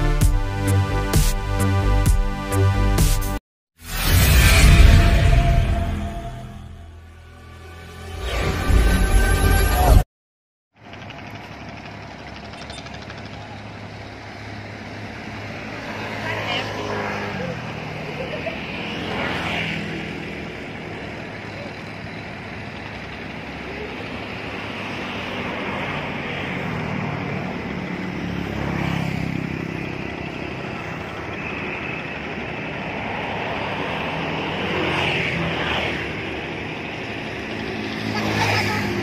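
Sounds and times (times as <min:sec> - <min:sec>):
road traffic engine rumble: 0:10.8 - 0:39.0
vehicles passing close by: 0:10.8 - 0:39.0.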